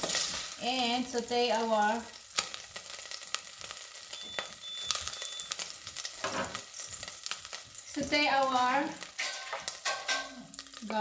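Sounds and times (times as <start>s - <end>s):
oil sizzling in a pot: 0.0s - 11.0s
short electronic beeps: 4.2s - 5.6s.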